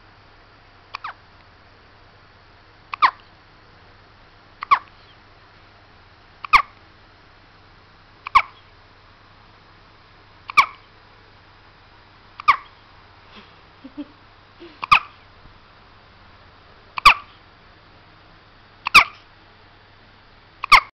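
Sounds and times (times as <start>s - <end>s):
baby hiccupping: 0.9s - 1.2s, 2.9s - 3.3s, 4.6s - 5.0s, 6.4s - 6.8s, 8.2s - 8.7s, 10.5s - 10.9s, 12.4s - 12.8s, 13.9s - 15.2s, 17.0s - 17.4s, 18.8s - 19.3s, 20.6s - 20.9s.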